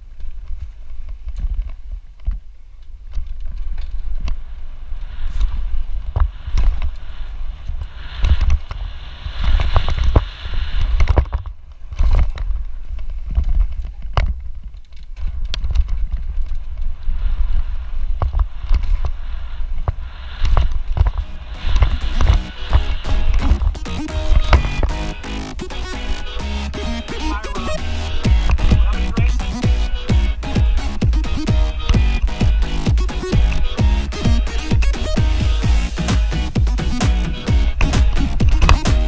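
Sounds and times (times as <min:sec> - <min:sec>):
bike rattling over bumps: 0:09.5 - 0:26.3.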